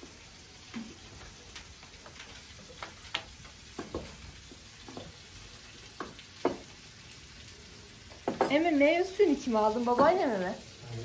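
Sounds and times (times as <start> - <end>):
faint steady hiss: 0.0 - 11.0
dishes and cutlery clinking: 8.2 - 8.7.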